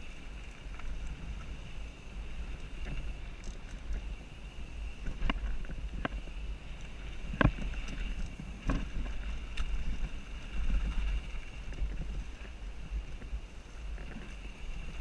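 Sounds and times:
wind and riding rumble: 0.0 - 15.0
bike knocks and rattles: 7.2 - 12.6.

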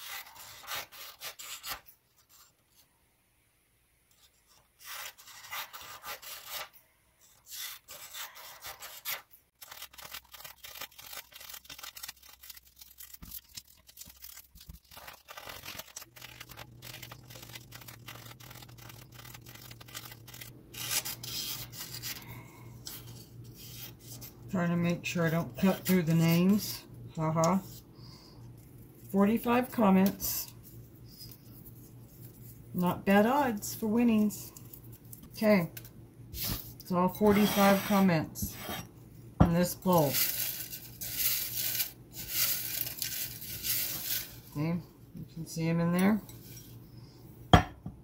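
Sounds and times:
scissors snipping paper: 7.5 - 22.2
paper rustling: 7.5 - 22.3, 39.9 - 44.5.

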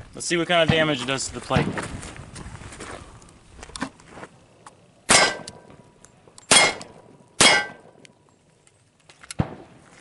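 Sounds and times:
pistol shots: 5.1 - 5.7, 6.5 - 8.0, 9.4 - 9.7.

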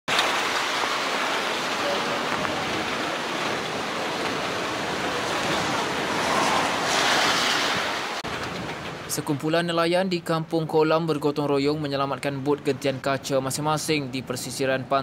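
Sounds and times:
strong wind rushing through palm fronds: 0.1 - 9.3.

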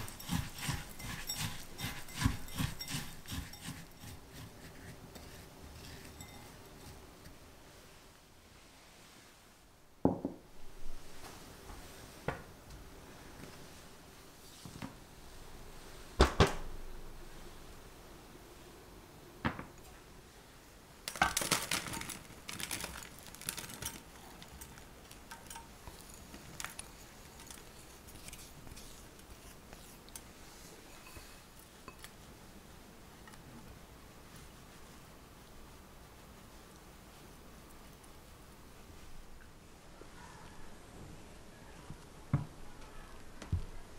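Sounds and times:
spatula scraping and pressing: 0.0 - 7.0
glass and ceramic clinks: 6.1 - 6.6, 25.3 - 26.3
crumbs pouring into metal frame: 21.1 - 27.8.

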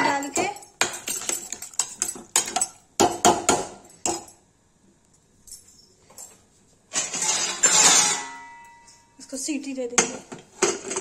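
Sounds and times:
metal ladle scraping pot: 6.9 - 8.5.

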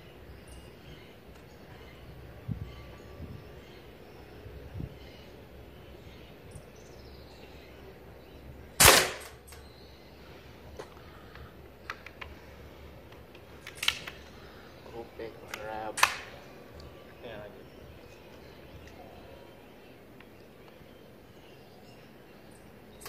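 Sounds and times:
air rifle shot: 8.8 - 9.4, 16.0 - 16.4
faint clicks: 10.8 - 12.4.

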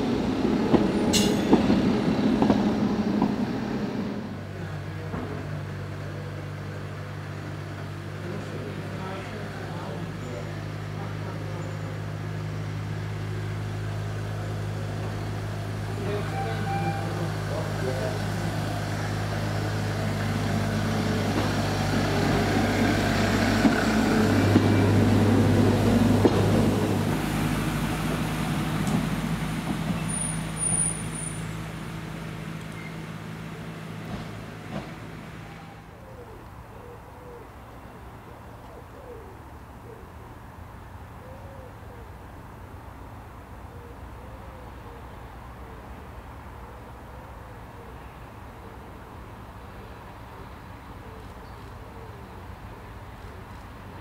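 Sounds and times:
locomotive engine drone: 0.0 - 54.0
pigeon cooing: 36.0 - 40.1.

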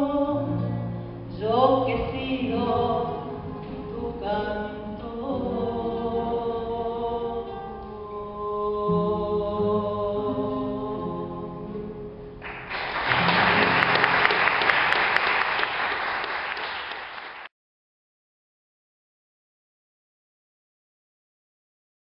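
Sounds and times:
acoustic guitars ringing: 8.9 - 15.0
audience applause: 12.4 - 17.5.

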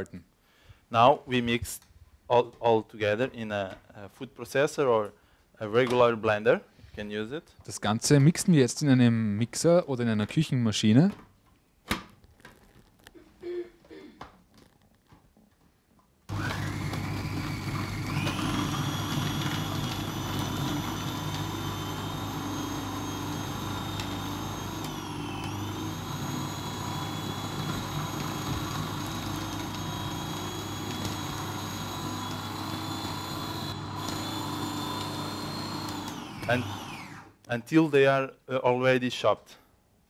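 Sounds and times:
food processor motor whine: 16.3 - 37.4.

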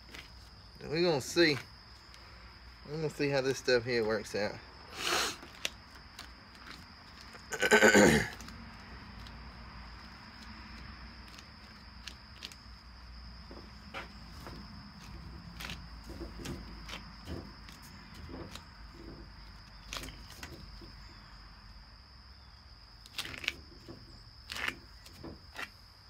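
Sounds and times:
high insect trill: 0.0 - 26.0
casting tape clicks and crinkles: 5.4 - 7.3, 23.0 - 23.6, 24.4 - 25.7.

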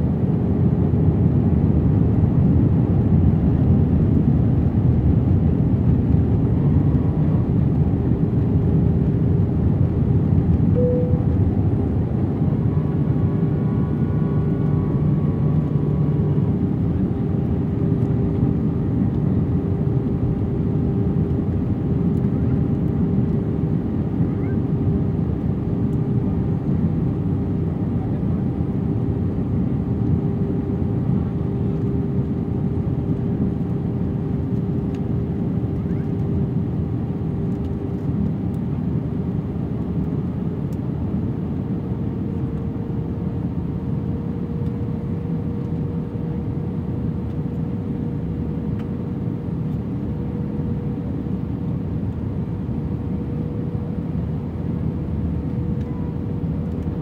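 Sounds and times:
airplane cabin engine and airflow rush: 0.0 - 57.0
steady hum rising in pitch: 10.7 - 17.6.

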